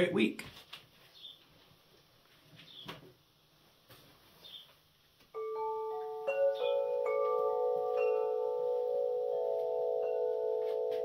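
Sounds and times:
chimes ringing: 5.4s - 11.0s.

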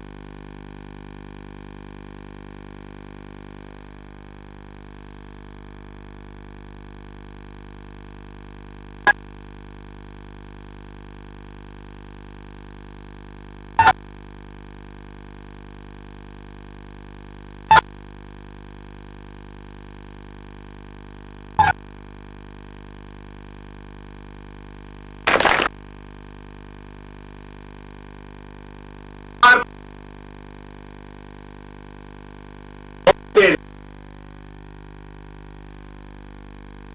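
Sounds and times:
electrical hum: 0.0s - 28.1s, 28.8s - 31.8s, 33.0s - 36.9s
short loud blips: 25.2s - 25.8s, 29.4s - 29.7s.

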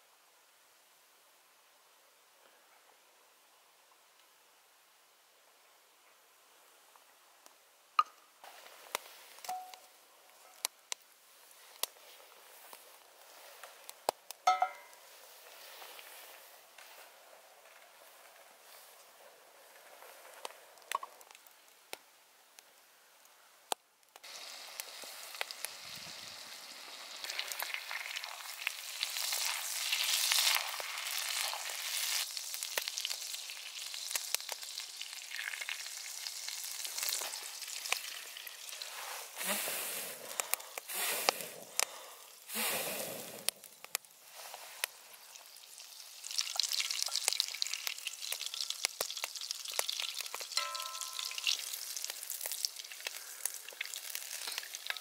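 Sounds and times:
butter sizzling in a pan: 24.2s - 55.0s.

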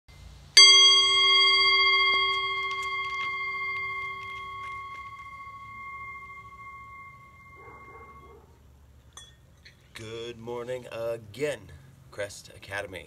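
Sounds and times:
singing bowl struck and ringing: 0.6s - 8.4s.

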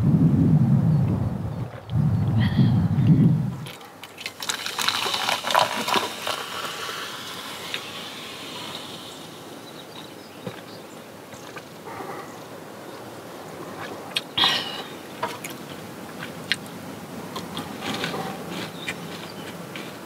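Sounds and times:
low rumble: 0.0s - 3.7s
drink pouring into a cup: 4.2s - 9.0s
soft fizzing hiss: 4.2s - 11.4s.

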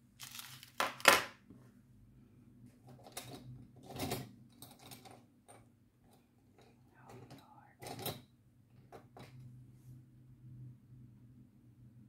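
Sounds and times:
plastic bags clicking and rustling: 0.2s - 1.3s
faint low hum: 1.5s - 12.0s.

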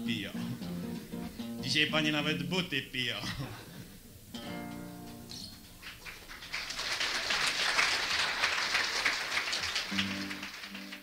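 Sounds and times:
acoustic guitar: 0.0s - 6.0s, 9.8s - 11.0s
audience applause: 5.8s - 11.0s.

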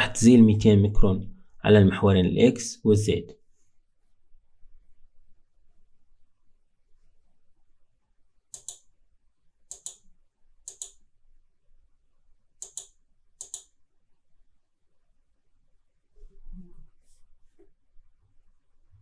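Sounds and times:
computer mouse double clicks: 8.5s - 8.9s, 9.7s - 10.0s, 10.7s - 11.0s, 12.6s - 13.7s.

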